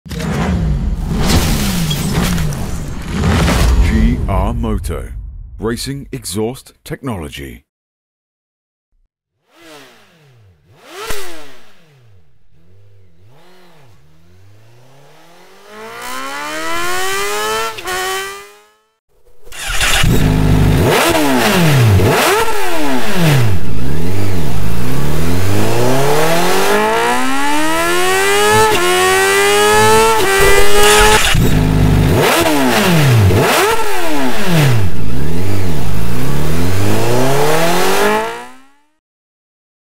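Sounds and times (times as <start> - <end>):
motorcycle engine revving: 9.4 - 39.0.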